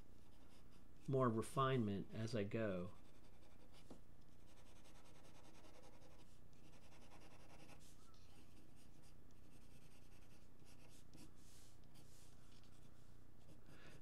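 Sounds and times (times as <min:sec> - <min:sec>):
faint low hum: 0:00.0 - 0:14.0
pencil scratching on paper: 0:00.2 - 0:00.8, 0:02.9 - 0:14.0.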